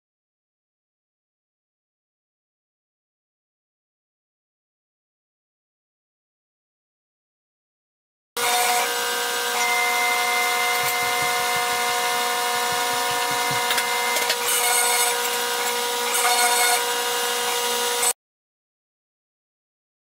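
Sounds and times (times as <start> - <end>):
mill spindle whining: 8.4 - 18.2
router bit cutting hiss: 8.4 - 18.2.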